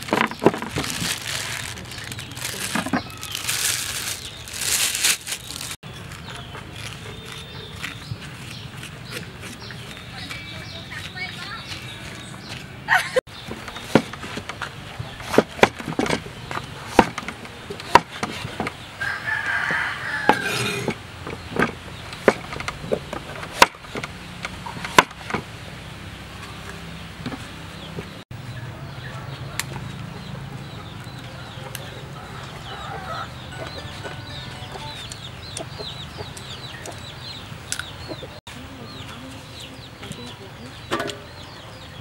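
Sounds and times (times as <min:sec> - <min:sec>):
cleaver chopping on wooden board: 0:16.9 - 0:17.3
chickens clucking: 0:27.4 - 0:42.0.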